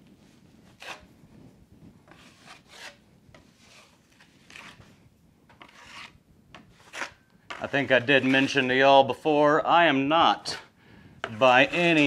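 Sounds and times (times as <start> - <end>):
taping knife scraping ceiling: 0.8 - 1.1, 2.1 - 8.7, 10.4 - 12.0.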